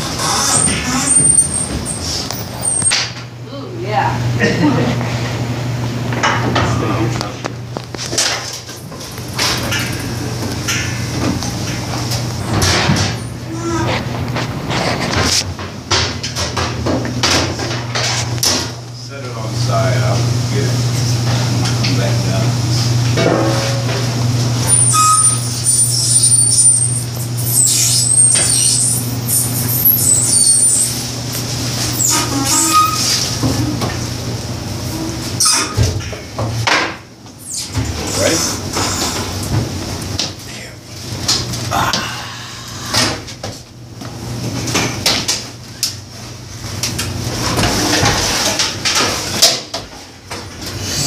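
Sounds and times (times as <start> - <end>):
hand truck squeaking: 0.0 - 3.2, 24.6 - 31.1, 31.7 - 33.3
steady low hum: 0.0 - 26.1, 36.0 - 49.3.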